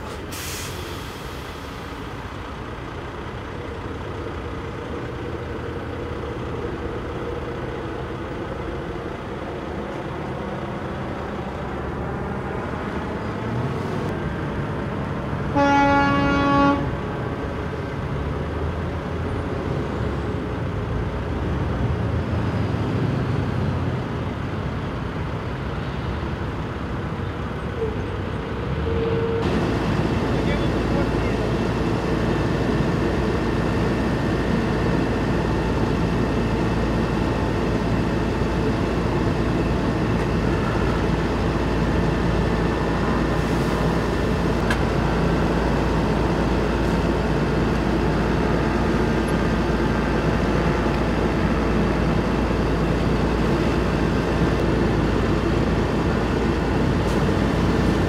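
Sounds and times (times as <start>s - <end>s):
vehicle engines rumbling: 0.0s - 58.0s
horn blast: 15.5s - 17.0s.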